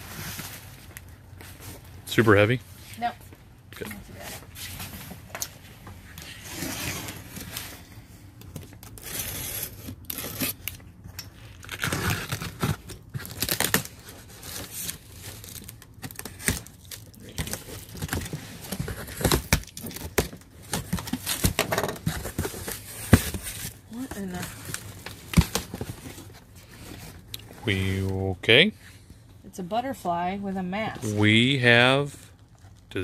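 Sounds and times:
cardboard rustling and scraping: 0:04.0 - 0:10.6, 0:11.6 - 0:28.0
tape tearing: 0:08.6 - 0:26.2.

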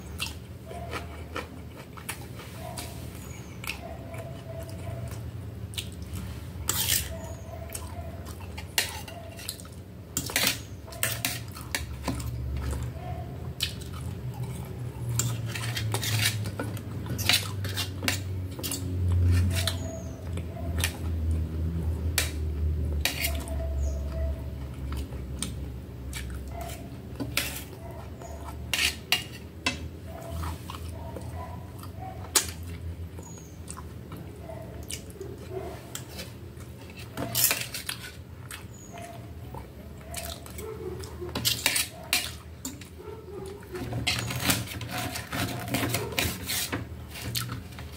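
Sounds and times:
cutlery scraping metal plate: 0:06.6 - 0:07.2, 0:10.2 - 0:12.3, 0:15.0 - 0:20.1, 0:23.0 - 0:23.5, 0:26.6 - 0:27.7, 0:28.7 - 0:30.5, 0:35.9 - 0:38.2, 0:41.3 - 0:43.0, 0:43.8 - 0:47.9.

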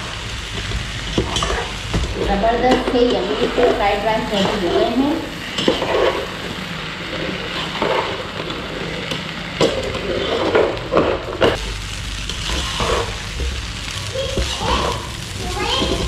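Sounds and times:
rice sizzling in a pot: 0:00.0 - 0:16.0
metal spoon scraping a pot: 0:05.6 - 0:06.3.

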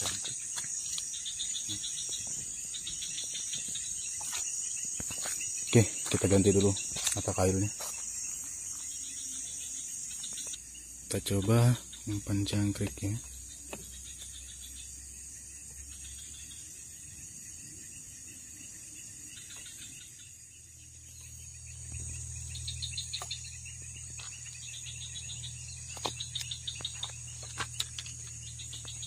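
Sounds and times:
insects chirring: 0:00.0 - 0:29.0.

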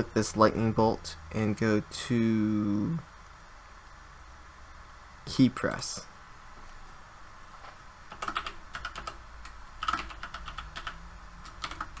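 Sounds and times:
keyboard typing: 0:08.1 - 0:12.0.

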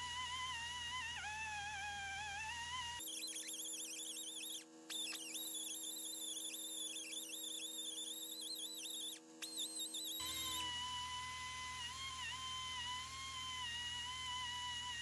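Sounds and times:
rotary tool wire wheel whining: 0:00.0 - 0:11.1.

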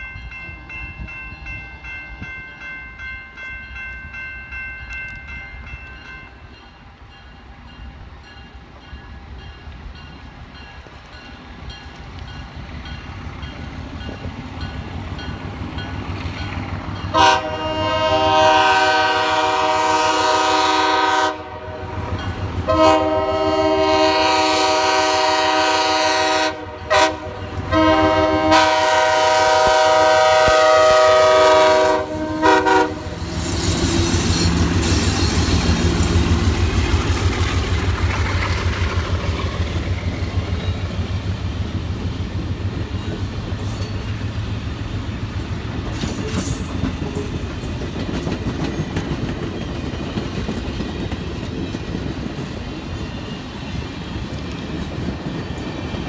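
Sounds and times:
railroad crossing signal ringing: 0:00.0 - 0:52.0
train rumble: 0:00.0 - 0:56.0
locomotive air horn: 0:17.1 - 0:35.0.

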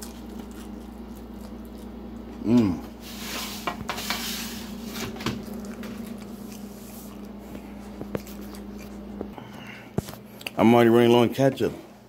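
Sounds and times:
soft squishy chewing: 0:00.0 - 0:02.5, 0:05.4 - 0:10.6
steady low hum: 0:00.0 - 0:12.0.

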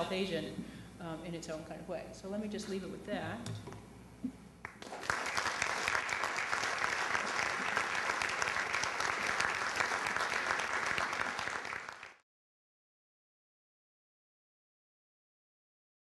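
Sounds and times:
audience applauding: 0:04.6 - 0:12.2.

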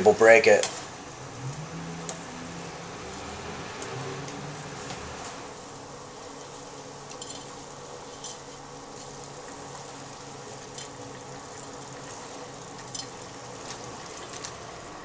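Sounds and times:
steady low hum: 0:00.0 - 0:15.0
spatula stirring spaghetti in saucepan: 0:06.1 - 0:14.8.

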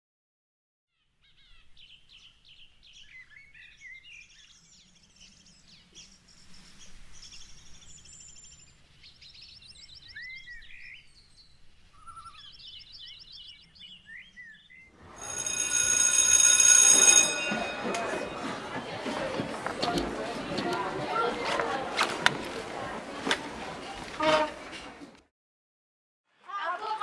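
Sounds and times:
birds chirping and trilling: 0:01.0 - 0:14.9.

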